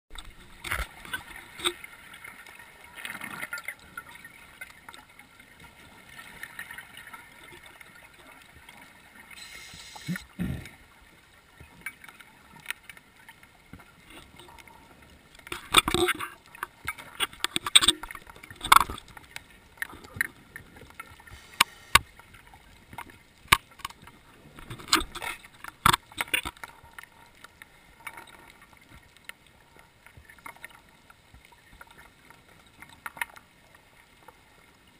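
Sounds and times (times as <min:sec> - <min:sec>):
underwater hiss: 0:09.3 - 0:10.8, 0:21.2 - 0:22.2
exhaled bubbles bursting: 0:10.0 - 0:10.8
underwater clicks: 0:15.3 - 0:22.3, 0:22.9 - 0:27.1.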